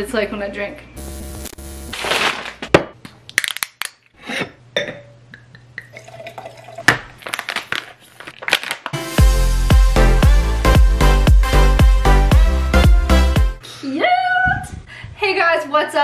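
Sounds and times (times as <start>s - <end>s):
plastic pouch tearing open: 2.0s - 2.7s, 7.2s - 9.0s
wine pouring into a glass: 5.8s - 7.2s.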